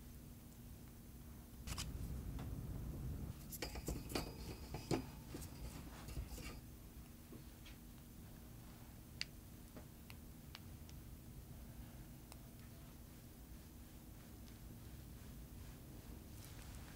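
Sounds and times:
pastries clinking on wire rack: 3.4 - 6.6
wire rack ringing: 3.5 - 6.6.

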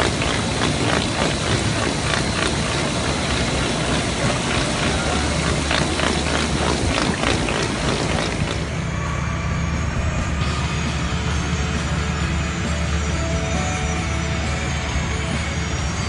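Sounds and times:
water spraying and running: 0.0 - 8.7
tractor engine running: 0.0 - 16.0.

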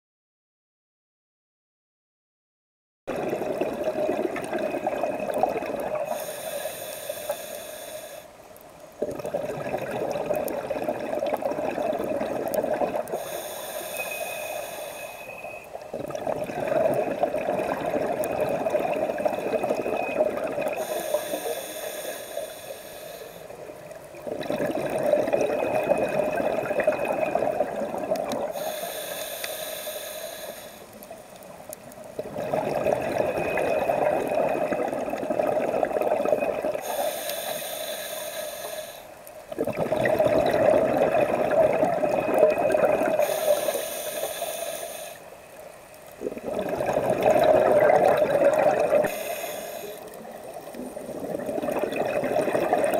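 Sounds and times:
bubbling: 3.1 - 7.8, 8.6 - 52.9
diver breathing through regulator: 6.0 - 8.4, 13.0 - 15.7, 20.7 - 23.6, 28.3 - 31.0, 36.7 - 39.2, 43.0 - 45.4, 48.8 - 50.3.

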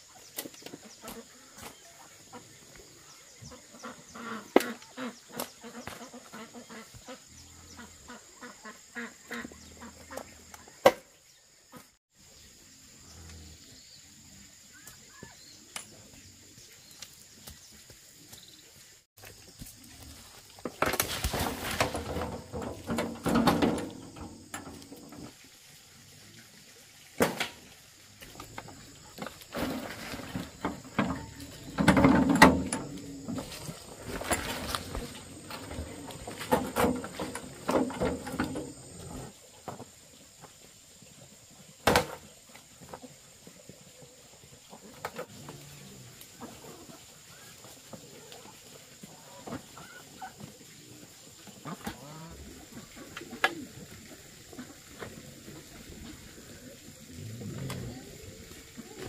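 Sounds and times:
soil spilling and scraping: 19.0 - 25.5, 27.2 - 39.9.

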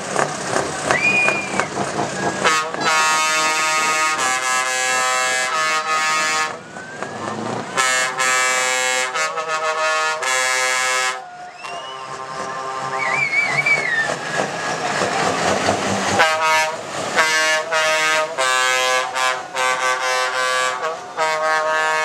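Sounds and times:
truck air horn blasts: 2.4 - 6.7, 7.4 - 14.1, 16.1 - 22.0.

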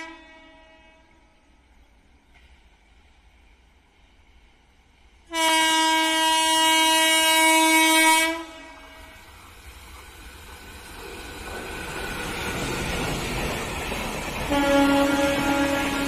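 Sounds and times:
train horn blast: 0.0 - 1.4, 5.3 - 9.4, 14.5 - 16.0
train rumble: 0.0 - 16.0.

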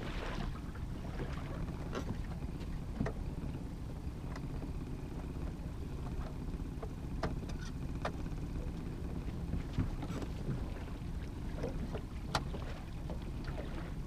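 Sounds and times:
boat motor rumble: 0.0 - 14.0
water along hull: 0.0 - 14.0
light knocks and clicks: 1.9 - 3.2, 5.4 - 8.3.

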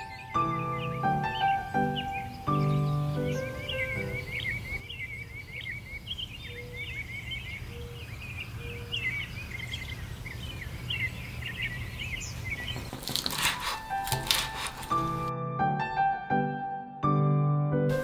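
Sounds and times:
songbirds chirping: 0.0 - 15.3
knife chopping on wooden board: 12.7 - 15.2.

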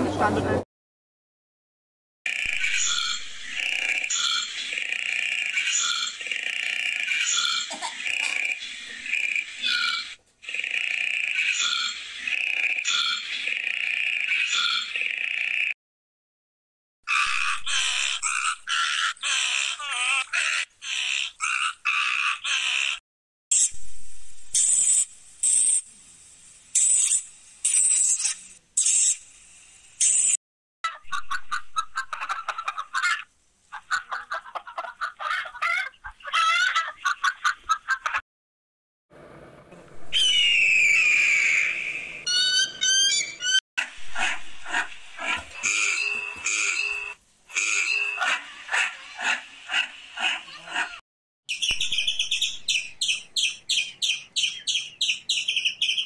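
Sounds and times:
eagle screaming: 40.1 - 43.6, 44.2 - 51.0.

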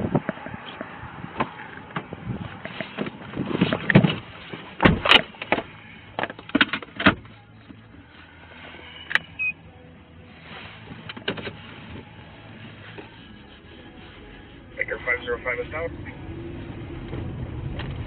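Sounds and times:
car door thud: 4.8 - 5.3.

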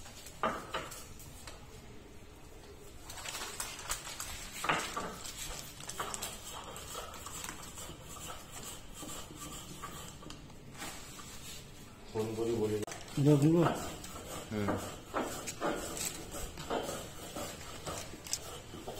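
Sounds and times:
plastic packet rustling and clicking: 3.0 - 6.3.

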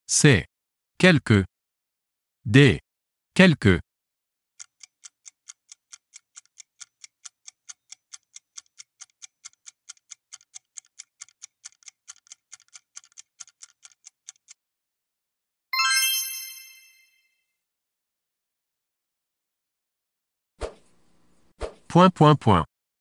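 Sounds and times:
clock ticking: 4.6 - 14.6.

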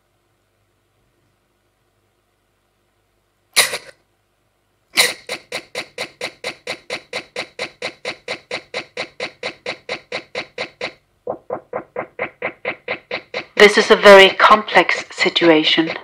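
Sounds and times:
electronic sound burst: 5.0 - 16.0
stuttering sample loop: 5.0 - 16.0.

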